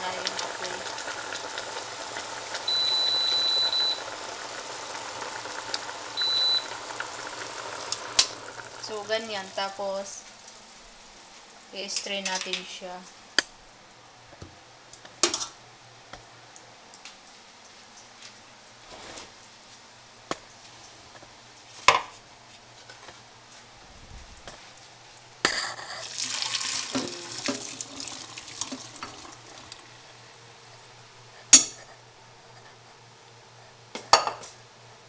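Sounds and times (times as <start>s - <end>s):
water splashing into a sink: 26.0s - 29.8s.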